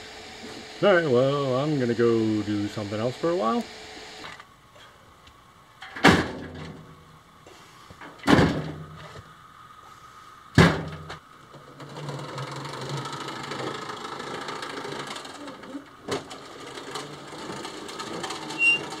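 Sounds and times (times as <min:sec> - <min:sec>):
small motor running: 0:11.8 - 0:19.0.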